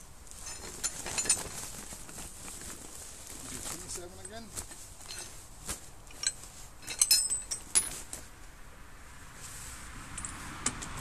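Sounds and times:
metal tools clinking in bag: 0.3s - 5.4s, 6.0s - 8.1s.

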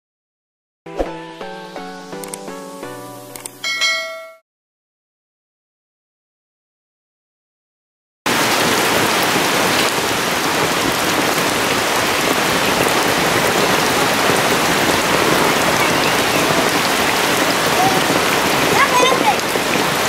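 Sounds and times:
heavy rain on ground and leaves: 8.3s - 20.0s.

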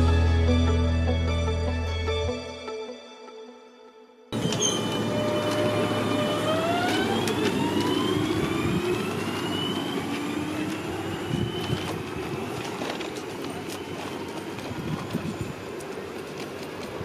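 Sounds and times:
train motors whining: 4.4s - 16.8s
train running gear rumble: 4.4s - 17.0s.

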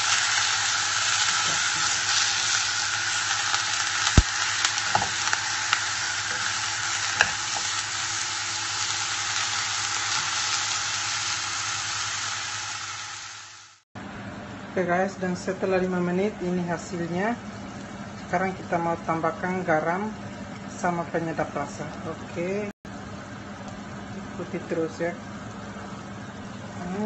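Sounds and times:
meat sizzling in a pot: 0.0s - 13.8s.

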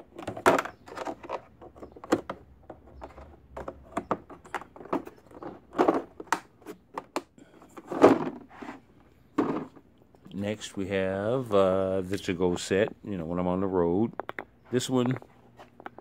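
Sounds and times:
loud plastic clatter: 0.1s - 8.5s, 9.4s - 9.8s.

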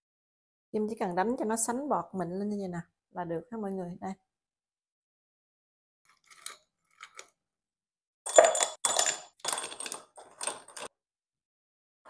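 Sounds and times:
ice cubes clinking in a glass: 8.3s - 10.9s.

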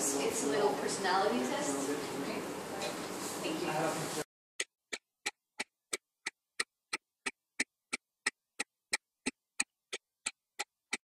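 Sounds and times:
wall clock ticking: 4.6s - 11.0s.

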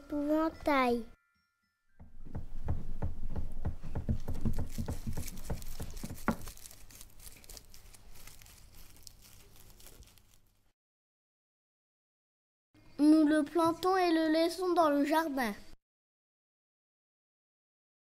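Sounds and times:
tissue paper rustling: 4.2s - 10.7s.

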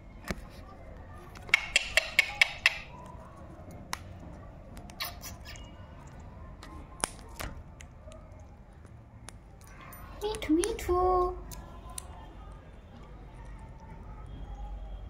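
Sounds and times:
parakeet beak clicks: 1.4s - 3.1s.

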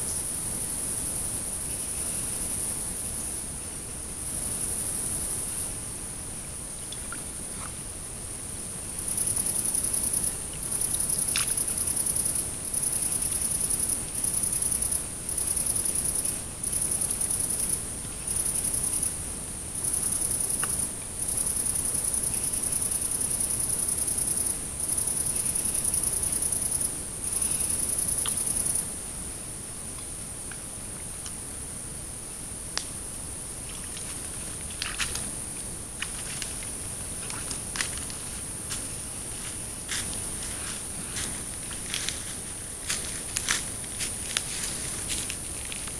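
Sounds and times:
insect buzzing trill: 19.8s - 28.8s.

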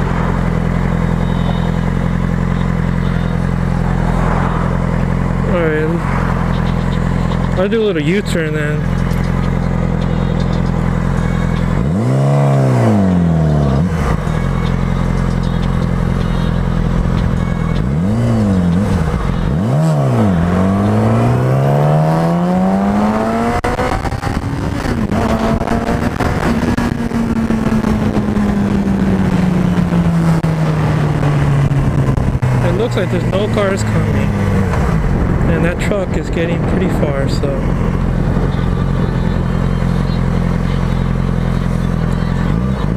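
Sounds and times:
motorcycle engine revving: 0.0s - 42.9s
wind noise: 20.5s - 32.7s, 34.2s - 39.6s.

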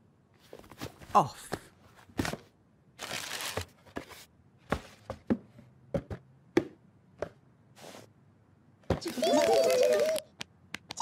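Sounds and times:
tissue paper rustling: 3.0s - 3.7s.

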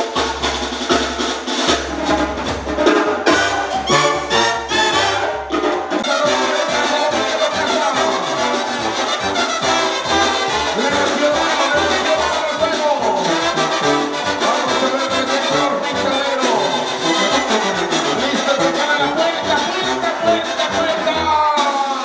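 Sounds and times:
brass band playing: 0.0s - 22.0s.

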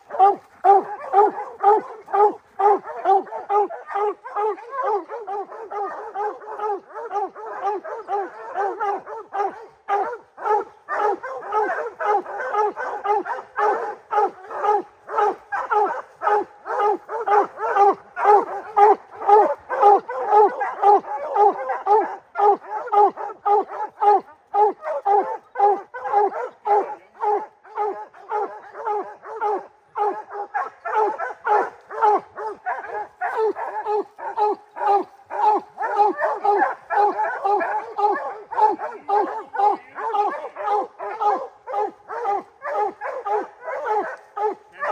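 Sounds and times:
hounds barking rapidly: 0.0s - 44.9s.

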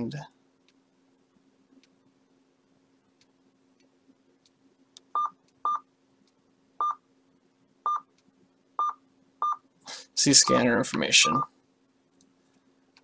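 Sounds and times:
faint steady hum: 0.0s - 13.0s
scanner key beeps: 10.4s - 11.5s.

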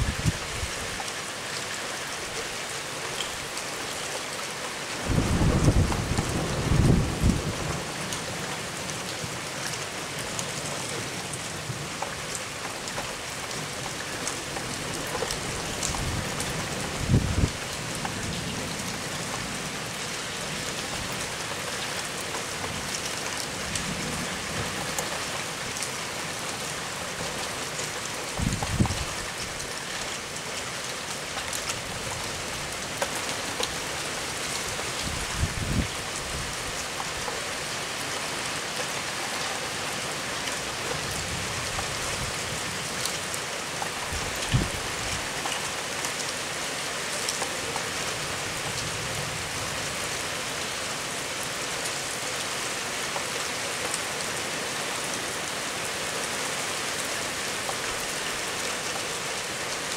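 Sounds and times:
low thunder rumbles: 5.0s - 7.9s.

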